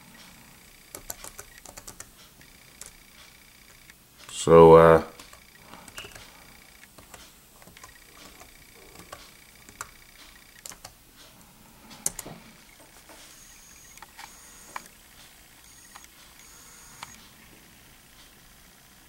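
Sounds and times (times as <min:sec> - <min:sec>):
laptop keyboard clicks: 0:00.9 - 0:02.1, 0:05.2 - 0:06.3, 0:06.9 - 0:11.0, 0:12.0 - 0:12.4.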